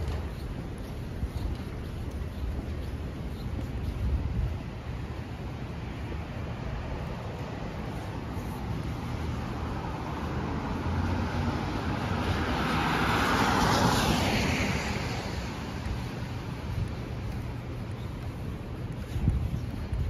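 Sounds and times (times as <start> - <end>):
low traffic rumble: 0.0 - 20.0
car tyres hissing on wet street: 7.5 - 15.8.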